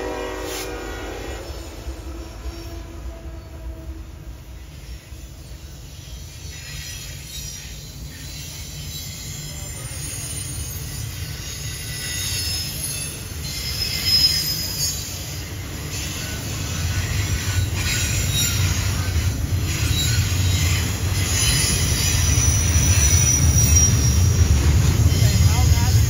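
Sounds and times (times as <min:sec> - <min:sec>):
freight train rumbling: 0:00.0 - 0:26.0
wheel squeal: 0:04.7 - 0:25.8.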